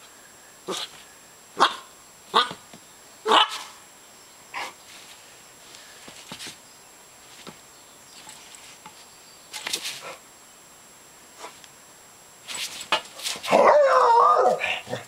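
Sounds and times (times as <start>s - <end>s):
dogs scuffling: 12.4s - 13.6s.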